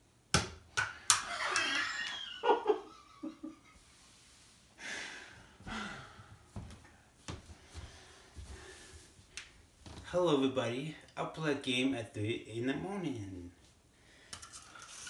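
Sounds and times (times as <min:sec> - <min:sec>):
man breathing heavily: 0:04.8 - 0:09.3.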